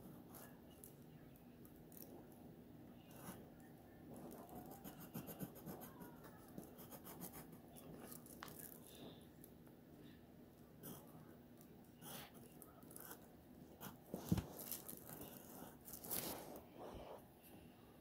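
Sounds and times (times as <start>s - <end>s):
faint steady hum: 0.0s - 18.0s
pencil scratching on paper: 4.2s - 8.2s.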